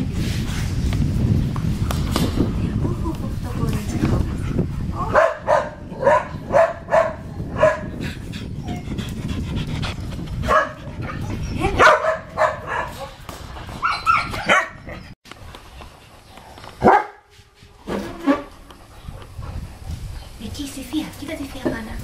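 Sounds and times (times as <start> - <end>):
dog barking: 5.1 - 7.9, 10.5 - 10.8, 11.8 - 13.2, 13.8 - 14.8, 16.8 - 17.2.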